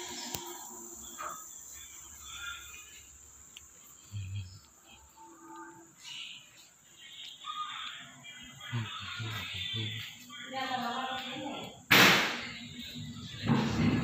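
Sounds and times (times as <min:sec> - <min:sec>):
high-pitched drone: 0:04.1 - 0:05.9.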